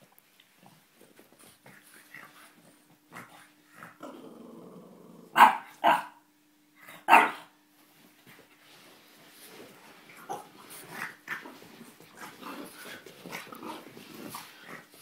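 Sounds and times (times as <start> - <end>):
dog growling: 3.1 - 5.4, 10.2 - 15.0
dog barking: 5.4 - 6.2, 7.1 - 7.5.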